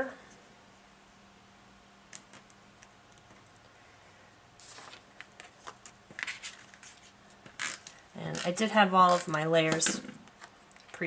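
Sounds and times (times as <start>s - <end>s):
tape runner clicks and scrapes: 7.4s - 10.5s.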